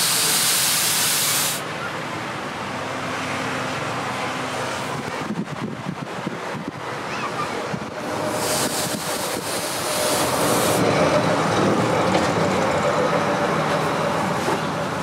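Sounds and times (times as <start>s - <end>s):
hot blade hissing in water: 0.0s - 1.6s, 8.3s - 10.8s
steady rushing noise: 2.3s - 15.0s.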